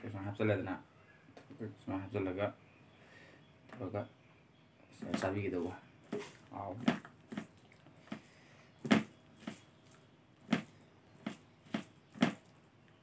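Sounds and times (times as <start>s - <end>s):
wet eating smacks: 6.1s - 12.6s.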